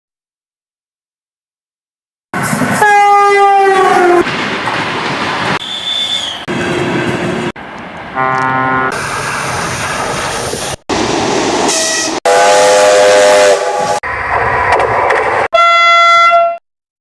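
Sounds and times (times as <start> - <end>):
train rumbling: 2.4 - 15.6
train horn blasts: 2.8 - 4.2, 8.2 - 9.0, 11.7 - 14.0, 15.6 - 16.6.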